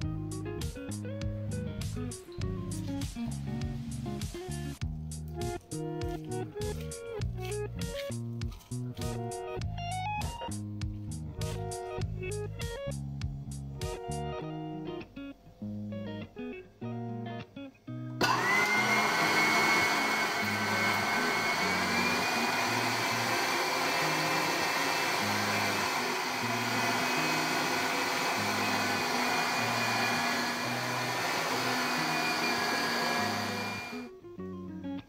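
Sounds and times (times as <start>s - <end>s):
guitar background music: 0.0s - 35.0s
electric meat grinder whining: 18.2s - 34.1s.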